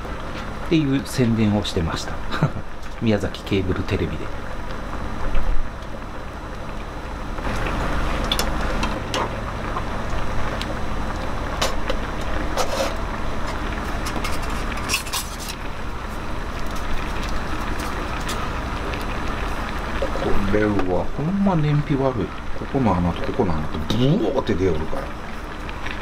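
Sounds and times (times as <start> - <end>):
stove burning: 0.0 - 26.0
soup bubbling at a boil: 4.3 - 26.0.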